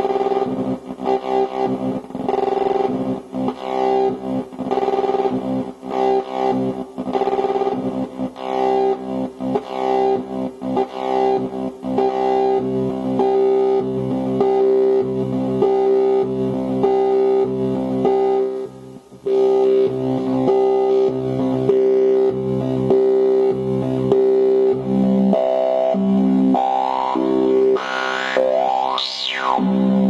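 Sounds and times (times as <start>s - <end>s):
modular synthesizer buzzy notes: 0.0s - 30.0s.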